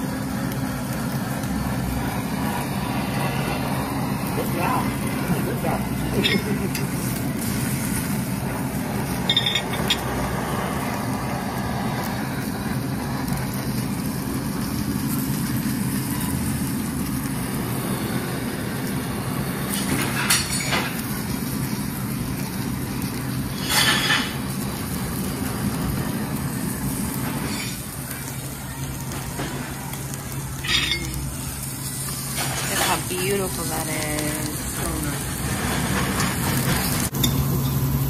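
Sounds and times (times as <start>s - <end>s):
steady low hum: 0.0s - 20.1s
meat sizzling on a grill: 0.0s - 38.0s.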